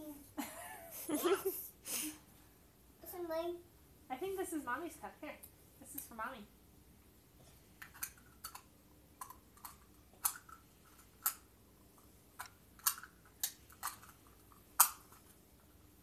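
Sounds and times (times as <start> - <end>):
plastic toy pieces clicking: 7.8 - 11.4, 12.4 - 15.2.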